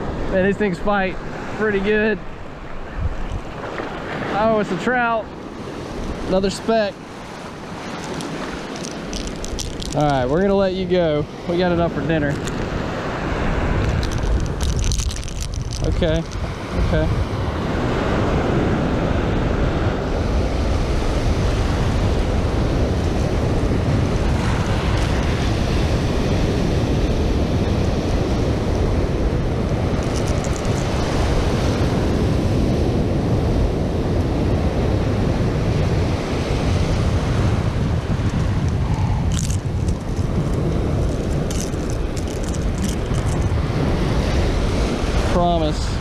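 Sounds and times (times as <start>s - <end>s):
wind buffeting microphone: 0.0s - 46.0s
small waves breaking: 1.0s - 19.0s.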